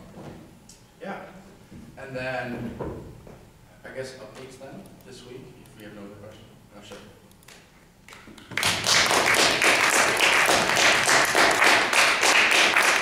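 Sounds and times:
audience clapping: 0:08.1 - 0:13.0.

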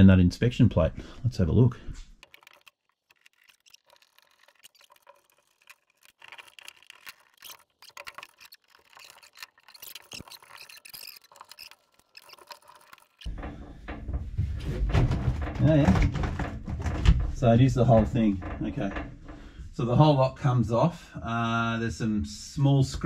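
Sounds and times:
hands handling metal: 0:02.0 - 0:14.0
screwdriver scraping on metal: 0:02.1 - 0:13.3
small metallic clicks: 0:02.1 - 0:13.3.

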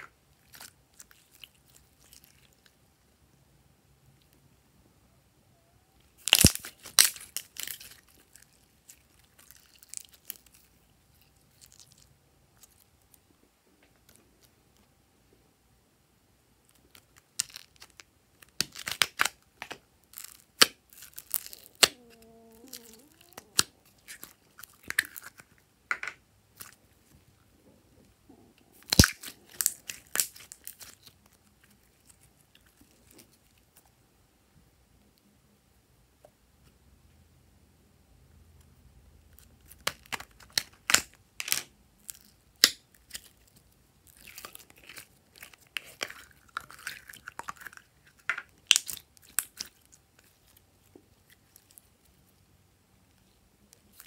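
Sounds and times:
slime crackling and clicking: 0:28.8 - 0:31.1.

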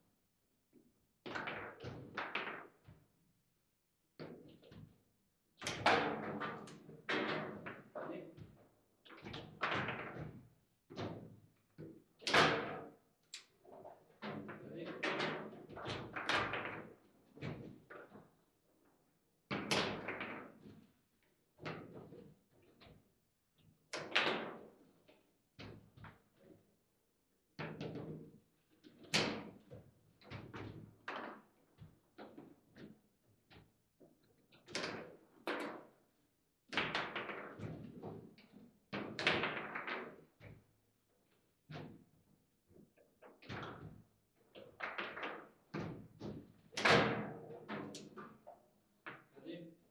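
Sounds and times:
table football knocks and clacks: 0:01.2 - 0:03.1, 0:05.6 - 0:18.4, 0:19.5 - 0:20.9, 0:21.6 - 0:23.1, 0:23.9 - 0:26.6, 0:27.6 - 0:36.0, 0:36.7 - 0:40.7, 0:41.7 - 0:42.1, 0:42.7 - 0:49.3.

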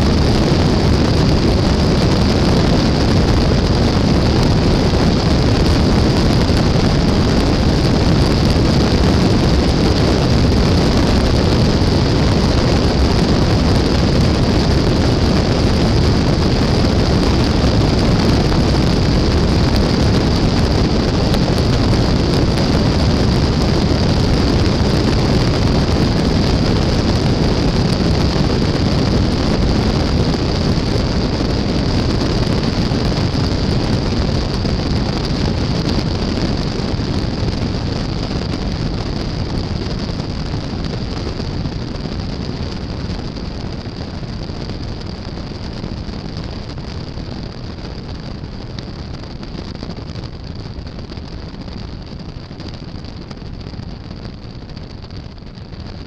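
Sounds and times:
wind noise: 0:00.0 - 0:56.0.

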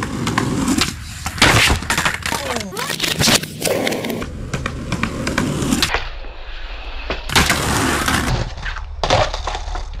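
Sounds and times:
skateboard clacking on ground: 0:00.0 - 0:06.1, 0:08.3 - 0:10.0
skateboard wheels on concrete: 0:00.0 - 0:10.0.

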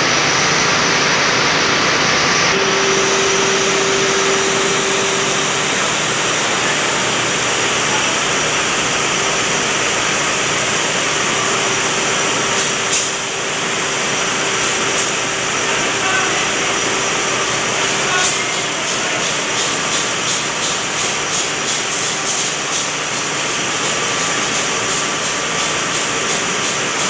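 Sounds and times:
hum: 0:00.0 - 0:09.0
ship diesel engine roaring: 0:00.0 - 0:27.0.

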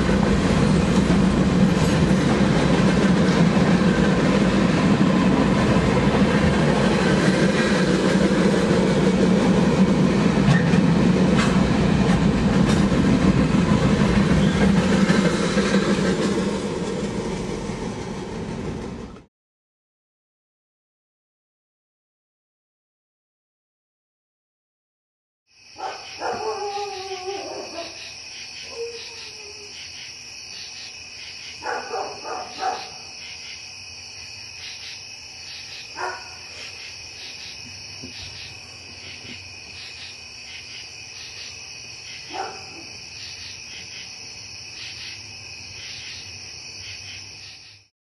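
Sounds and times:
night insects chorus: 0:00.0 - 0:18.6, 0:25.5 - 0:47.9
dog barking: 0:25.8 - 0:28.0, 0:31.6 - 0:33.1, 0:36.0 - 0:36.5, 0:42.3 - 0:43.0.

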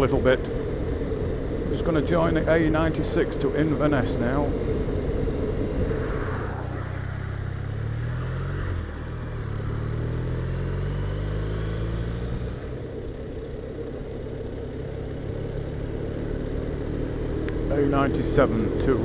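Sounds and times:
motorcycle engine accelerating: 0:00.0 - 0:19.0
wind noise: 0:01.7 - 0:08.8.

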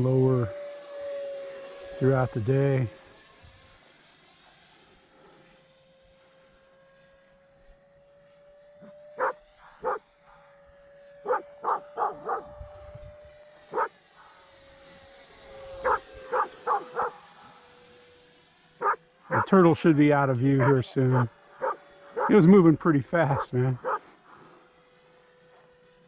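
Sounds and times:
rc jet whine: 0:00.0 - 0:26.0
dog barking: 0:09.2 - 0:10.0, 0:11.2 - 0:12.5, 0:13.7 - 0:13.9, 0:15.8 - 0:17.2, 0:18.8 - 0:19.5, 0:20.6 - 0:22.3, 0:23.3 - 0:24.0.

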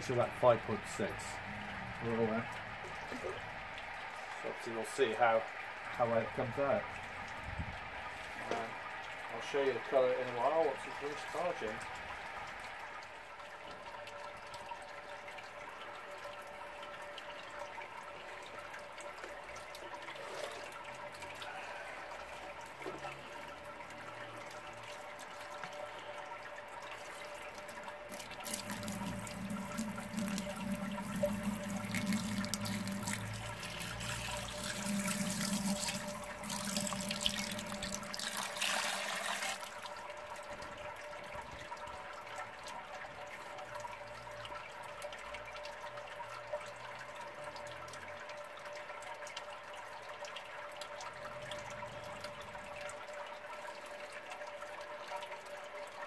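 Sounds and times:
water pouring and splashing: 0:00.0 - 0:56.0
water trickle: 0:00.0 - 0:56.0
faint steady hum: 0:25.7 - 0:38.6.

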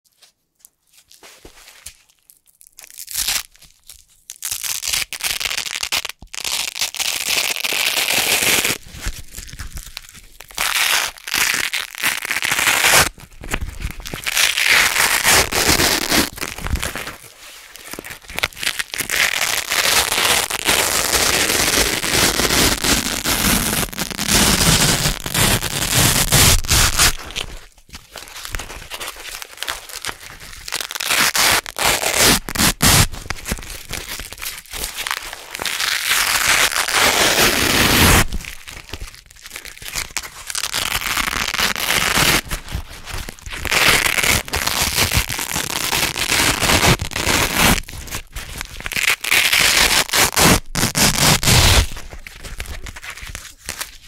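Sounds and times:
velcro strips ripping apart: 0:02.7 - 0:54.0.

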